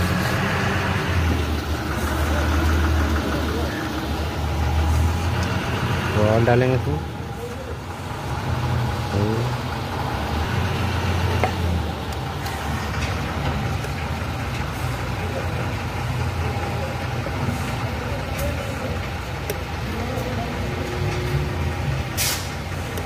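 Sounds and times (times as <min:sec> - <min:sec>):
engine idling rumble: 0:00.0 - 0:23.0.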